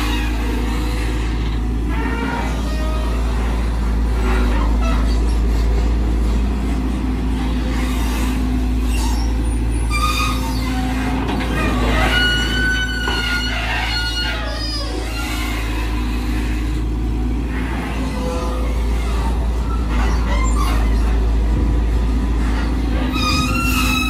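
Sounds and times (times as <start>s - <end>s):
excavator diesel engine: 0.0s - 24.0s
high squeal: 7.8s - 16.2s, 23.0s - 24.0s.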